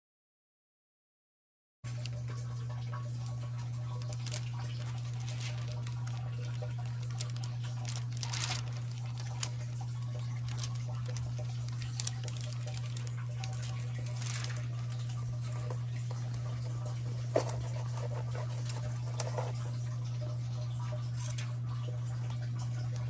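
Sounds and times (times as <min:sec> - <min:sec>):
low machine hum: 0:01.9 - 0:23.0
light clicks and patters: 0:02.0 - 0:20.0
short rustle: 0:04.8 - 0:15.1.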